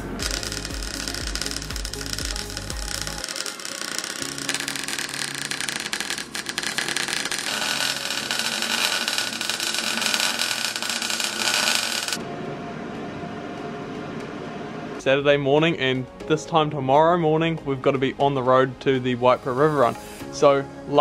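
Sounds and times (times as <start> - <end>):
arc welding crackle: 0.0 - 12.2.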